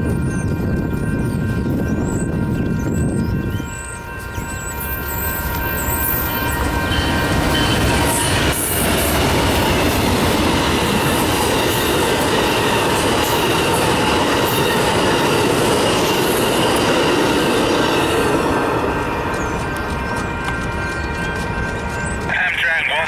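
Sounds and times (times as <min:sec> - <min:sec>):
train wheels rushing on rail: 0:00.0 - 0:23.0.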